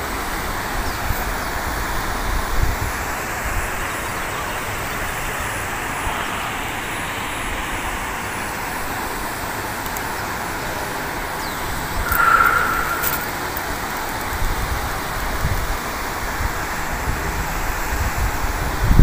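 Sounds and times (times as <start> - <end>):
road traffic rush: 3.0 - 15.2.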